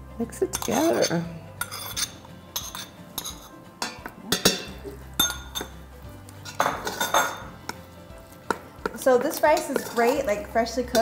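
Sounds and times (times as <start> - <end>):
paddle clinking against metal pot: 2.6 - 5.8, 8.5 - 11.0
paddle stirring rice: 6.5 - 11.0.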